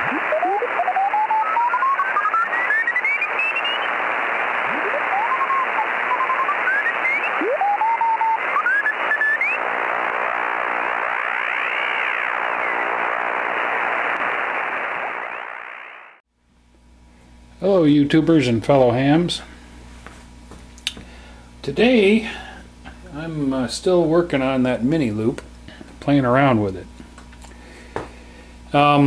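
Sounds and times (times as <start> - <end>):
shortwave radio static: 0.0 - 16.2.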